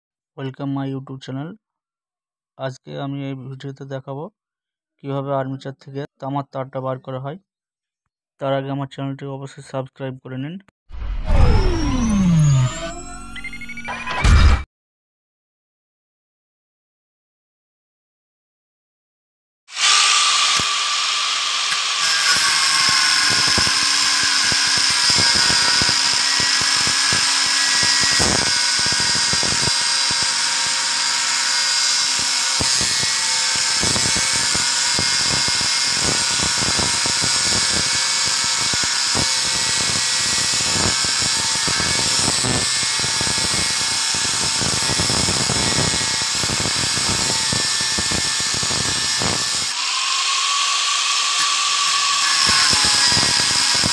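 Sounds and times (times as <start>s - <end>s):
angle grinder whining: 11.0s - 14.2s, 19.7s - 53.9s.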